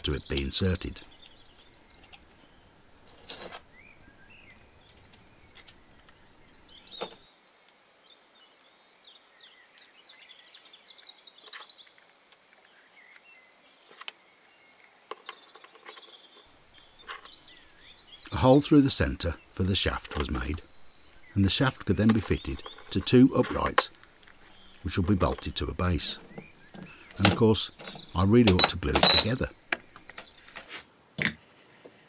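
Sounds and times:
metal parts clicking and tapping: 21.7s - 30.3s.

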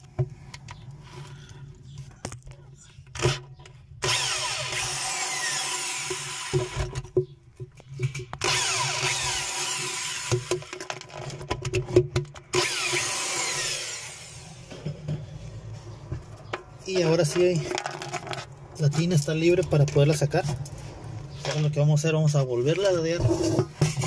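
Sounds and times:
power drill driving a socket: 4.0s - 6.8s, 8.4s - 10.7s, 12.5s - 14.7s.

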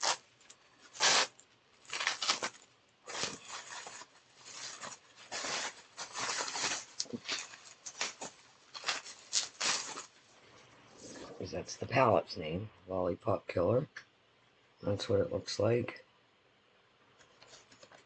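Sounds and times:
bubble wrap crinkling: 0.0s - 10.3s.

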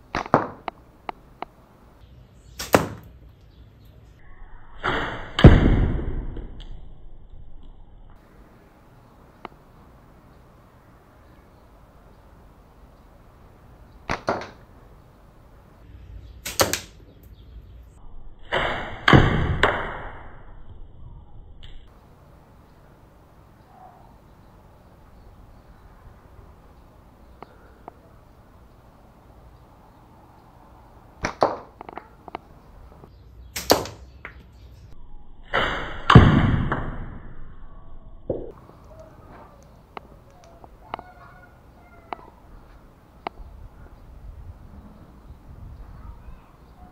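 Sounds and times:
slingshot sharp cracks: 0.1s - 0.8s, 2.6s - 3.2s, 4.8s - 6.8s, 14.0s - 14.7s, 16.4s - 17.0s, 18.4s - 20.4s, 31.2s - 32.4s, 33.5s - 34.1s, 35.5s - 37.2s
slingshot snaps: 16.5s - 17.0s, 33.6s - 34.0s.

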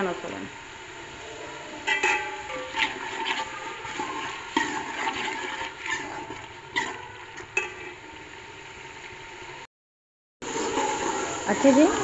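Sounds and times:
low sizzle of frying: 0.0s - 9.7s, 10.4s - 12.0s
spoon stirring and scraping a pot: 1.5s - 8.1s, 10.4s - 12.0s.

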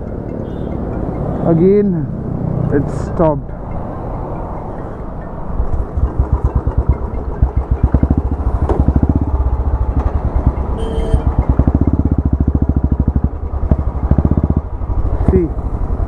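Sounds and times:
motorcycle engine exhaust thumps: 5.6s - 15.5s.

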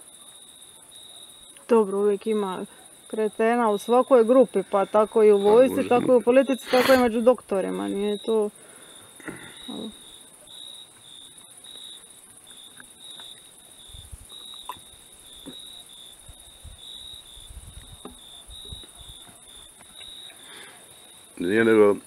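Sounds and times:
crickets chirping: 0.0s - 22.0s
high-pitched insect hiss: 0.0s - 22.0s.

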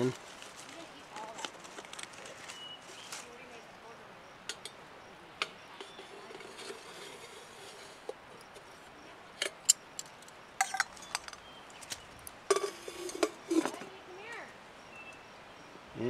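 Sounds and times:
metal cookware clinking: 9.4s - 11.4s, 12.5s - 13.9s.

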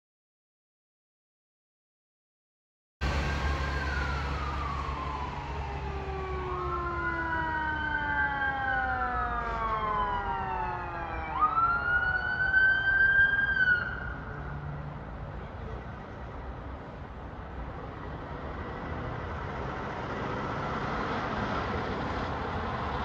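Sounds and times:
fire engine siren wailing: 3.0s - 14.9s, 17.8s - 23.0s.

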